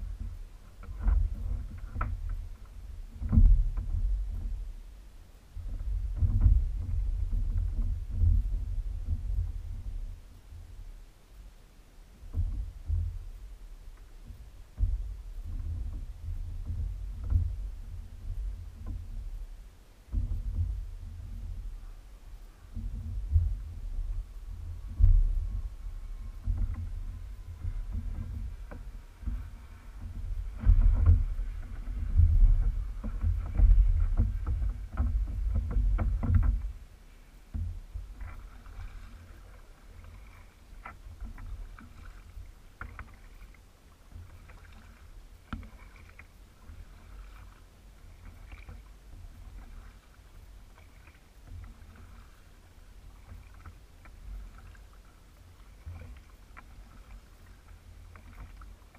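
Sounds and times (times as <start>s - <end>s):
kayak paddle strokes: 0.0s - 58.9s
low rumble on microphone: 0.0s - 58.9s
water splashing and dripping: 37.5s - 58.9s.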